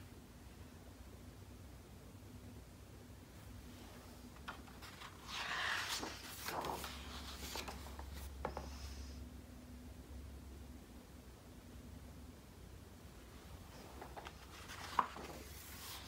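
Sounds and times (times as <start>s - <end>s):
book page turning: 4.3s - 8.8s, 13.7s - 16.0s.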